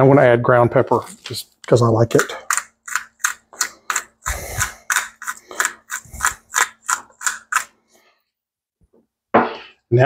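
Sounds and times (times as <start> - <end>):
pepper mill grinding: 1.6 - 7.8.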